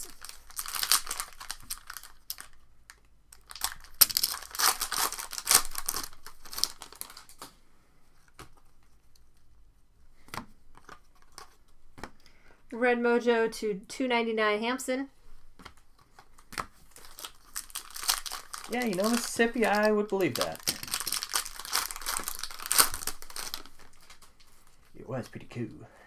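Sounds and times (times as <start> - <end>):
foil wrapper tearing and crinkling: 0.0 - 7.5, 16.9 - 24.3.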